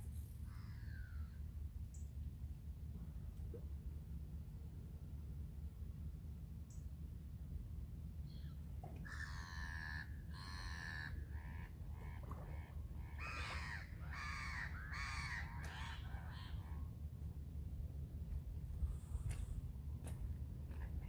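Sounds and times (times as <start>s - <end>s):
low steady rumble: 0.0s - 21.0s
crows cawing: 9.0s - 12.2s, 13.1s - 16.6s.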